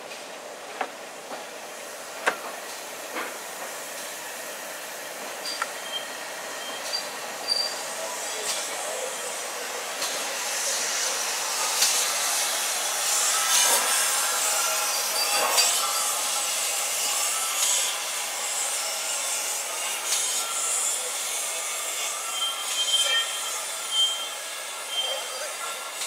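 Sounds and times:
steam locomotive moving: 0.0 - 26.0
hiss of escaping steam: 1.8 - 19.1.

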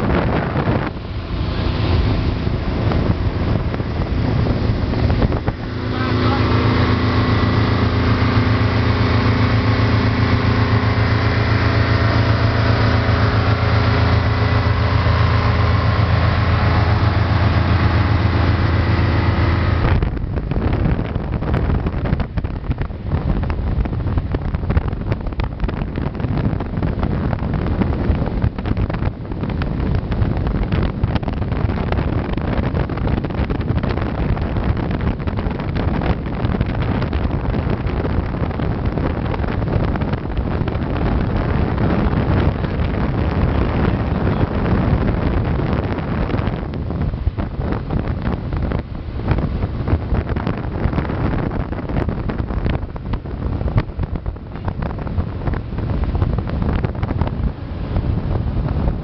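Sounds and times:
motorboat engine running: 0.0 - 59.0
wind buffeting microphone: 0.0 - 59.0.

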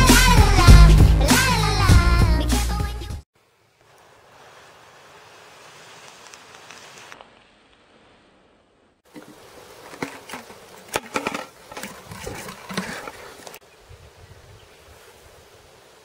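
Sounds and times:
faint forest hush: 3.4 - 16.0.

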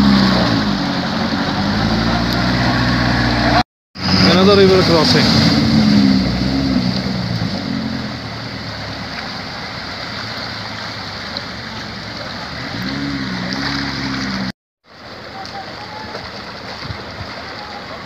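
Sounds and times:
van engine under load: 0.0 - 14.5
rushing floodwater: 0.0 - 18.0.

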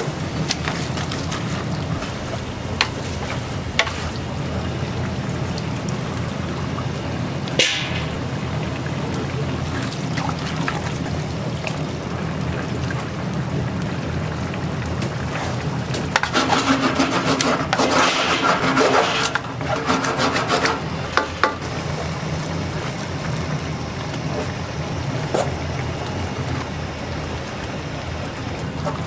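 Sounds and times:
wooden spatula scraping a pan: 16.1 - 21.4.

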